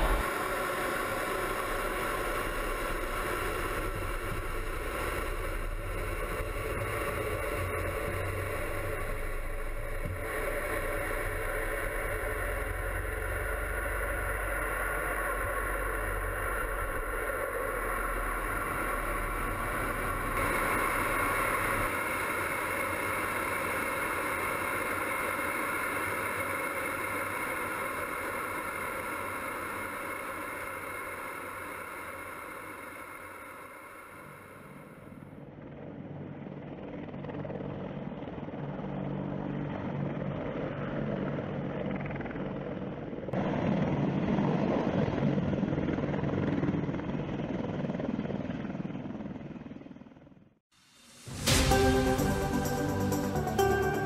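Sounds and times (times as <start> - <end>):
jet engines roaring: 0.0 - 26.3.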